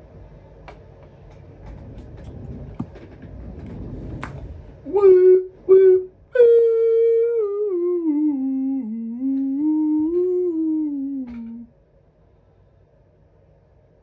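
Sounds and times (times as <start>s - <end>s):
person humming a tune: 4.9s - 11.7s.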